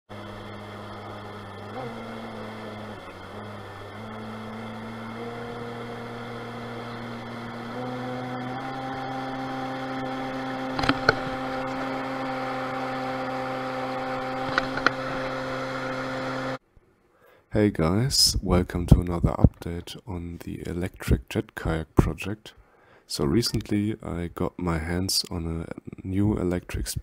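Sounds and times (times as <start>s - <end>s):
water-jet pump whining hum: 0.1s - 16.6s
short clicks: 10.7s - 11.4s, 14.4s - 15.3s.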